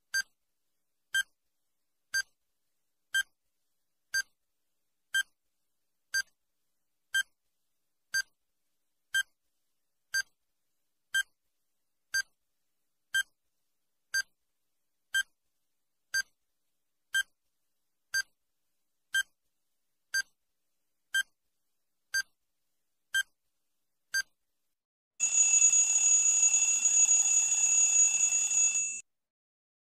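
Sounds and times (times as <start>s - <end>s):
loud ringing alarm: 25.2s - 29.0s
short electronic beeps: 25.2s - 29.0s.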